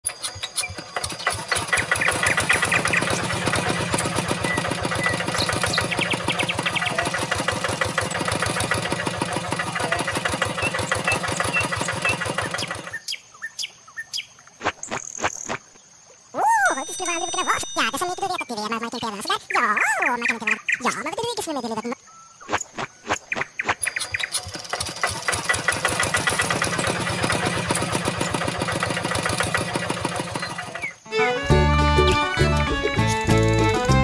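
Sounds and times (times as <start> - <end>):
toy tractor engine running: 0.1 - 13.0, 16.7 - 19.3, 24.2 - 34.0.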